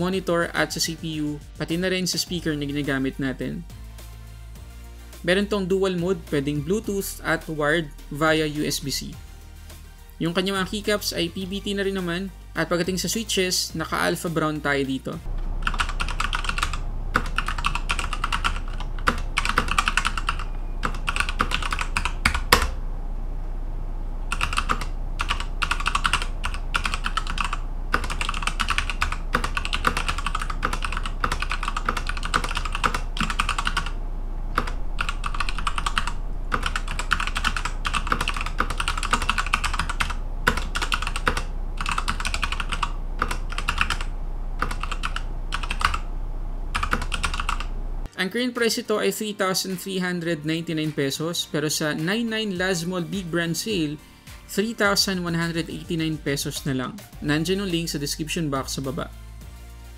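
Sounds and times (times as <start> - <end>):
mechanical keyboard typing: 15.6 - 22.8, 24.3 - 34.0, 34.6 - 46.0, 46.7 - 47.7.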